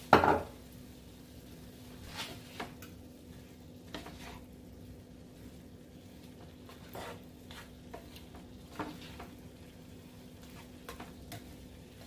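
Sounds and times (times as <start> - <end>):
faint sizzle in a pan: 0.0 - 12.0
utensil scraping a pan: 1.9 - 2.8, 3.8 - 4.6, 6.2 - 9.4, 10.4 - 12.0.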